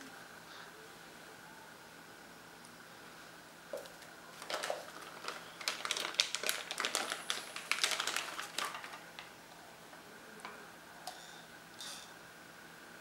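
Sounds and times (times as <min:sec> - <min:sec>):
plastic bag crinkling: 0:04.3 - 0:09.3.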